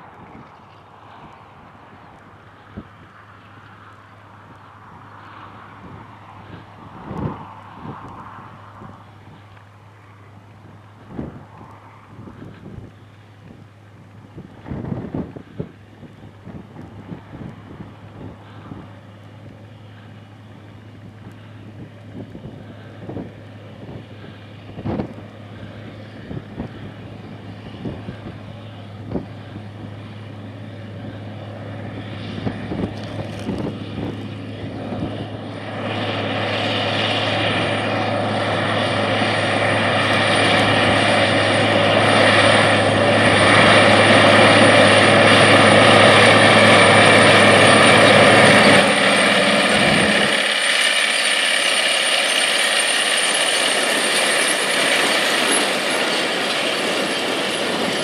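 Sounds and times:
tractor diesel engine under load: 0:00.0 - 0:58.0
tillage tool working soil: 0:32.2 - 0:58.0.

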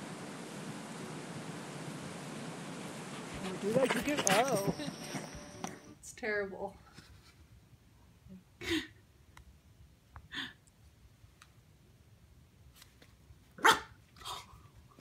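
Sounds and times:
puppy barking: 0:13.6 - 0:14.0.

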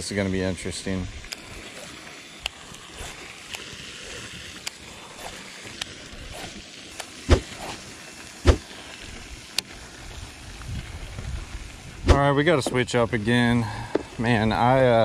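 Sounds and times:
wind on microphone: 0:10.0 - 0:12.4.

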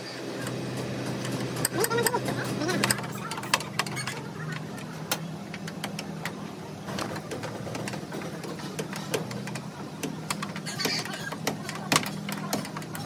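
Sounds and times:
motor humming: 0:00.0 - 0:13.0.

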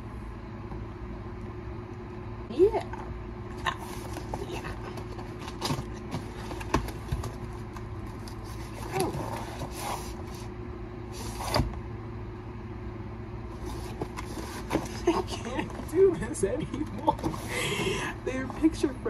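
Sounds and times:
steady low hum: 0:00.0 - 0:19.0
cardboard scraping and tapping: 0:03.8 - 0:10.5, 0:13.6 - 0:15.8.

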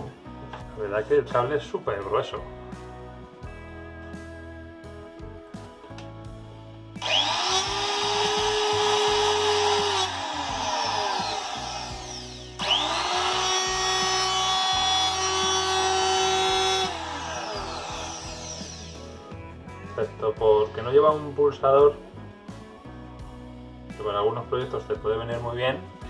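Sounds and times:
trim router whining: 0:07.0 - 0:19.4.

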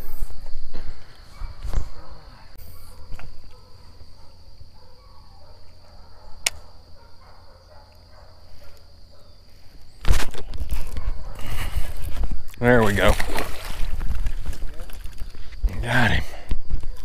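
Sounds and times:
high-pitched insect chorus: 0:00.0 - 0:17.0
sharp click: 0:06.4 - 0:06.7.

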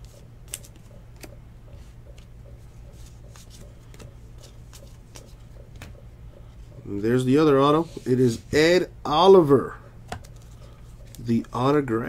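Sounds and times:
cards sliding with papery clicks: 0:00.0 - 0:05.4
steady low hum: 0:00.0 - 0:12.0.

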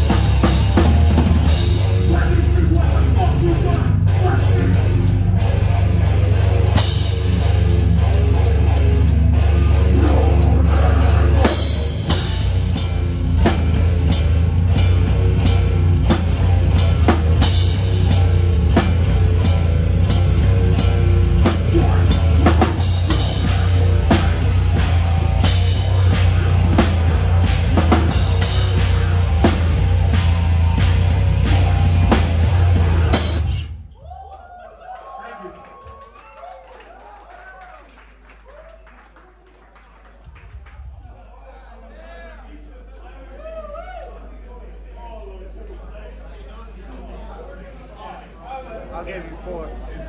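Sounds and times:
live rock band playing: 0:00.0 - 0:33.8.

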